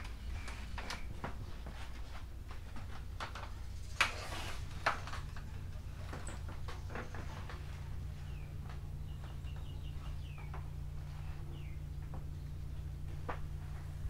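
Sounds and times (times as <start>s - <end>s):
steady low hum: 0.0s - 14.0s
footsteps on steel deck: 6.5s - 14.0s
high bird chirp: 8.2s - 12.8s.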